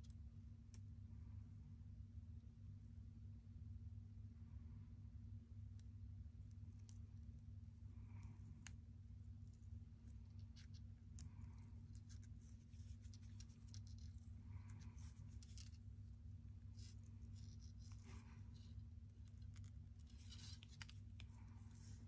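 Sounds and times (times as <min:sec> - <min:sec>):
low steady hum: 0:00.0 - 0:22.0
gloves rustling: 0:09.2 - 0:22.0.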